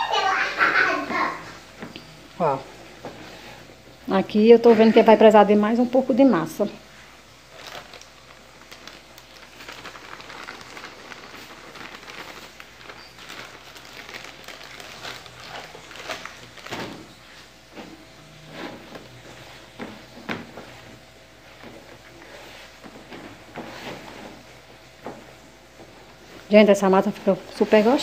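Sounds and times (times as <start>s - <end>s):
hand kneading dough in bowl: 1.6s - 28.0s
flour pouring from bag: 7.5s - 16.6s.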